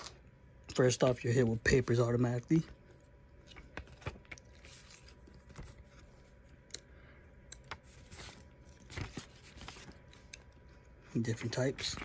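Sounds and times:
paper rustling and flicking: 0:07.8 - 0:10.3.

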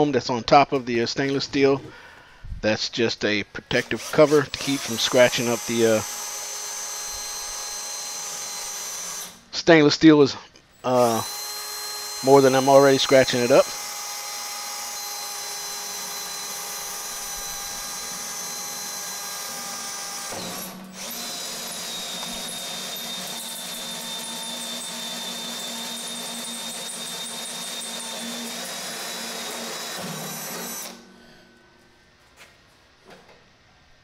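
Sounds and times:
power drill cutting steel: 0:03.8 - 0:09.4, 0:10.8 - 0:31.5.

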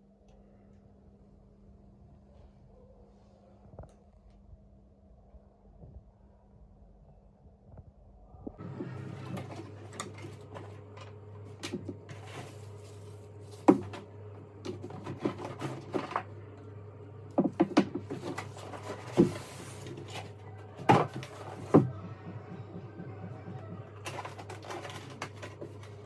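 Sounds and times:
cardboard rustling and scraping: 0:08.6 - 0:16.5, 0:17.4 - 0:21.9, 0:24.0 - 0:26.0.

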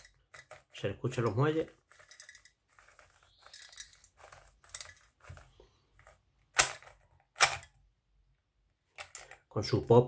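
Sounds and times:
puzzle cube springs: 0:00.0 - 0:07.8
puzzle cube clicking and clattering: 0:00.0 - 0:07.9, 0:08.8 - 0:09.5.

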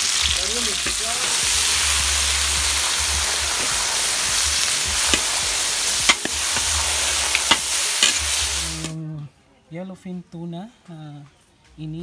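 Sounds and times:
meat sizzling in hot oil: 0:00.0 - 0:09.0
spatula scraping a wok: 0:00.1 - 0:09.0.

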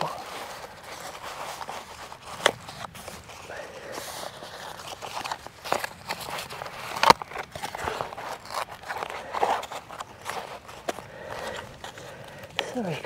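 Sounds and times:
cardboard sheets rustling: 0:00.0 - 0:13.0
footsteps: 0:00.0 - 0:13.0.

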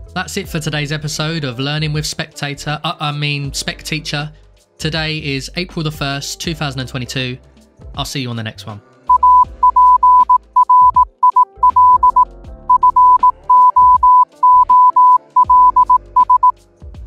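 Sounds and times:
synthesizer background music: 0:00.0 - 0:17.0
morse code beeps: 0:09.1 - 0:16.5.

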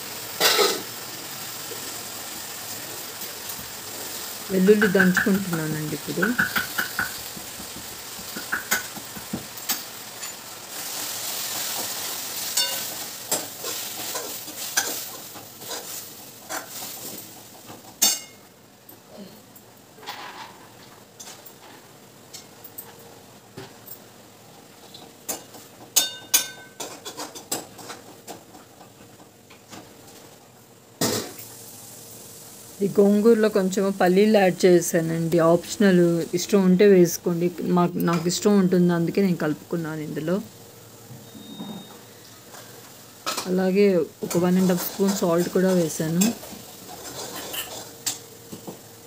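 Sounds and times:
leaves sizzling in a pan: 0:00.0 - 0:49.0
spoon clinking against pan: 0:26.0 - 0:26.8.

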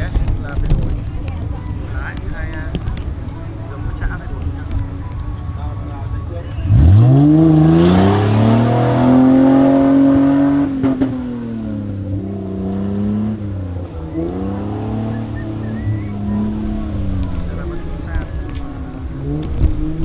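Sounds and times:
race car engine revving: 0:06.3 - 0:20.0.

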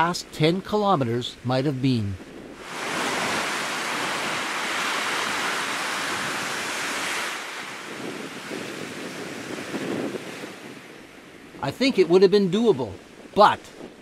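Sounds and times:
wind: 0:00.0 - 0:14.0
surf breaking on beach: 0:02.3 - 0:14.0.

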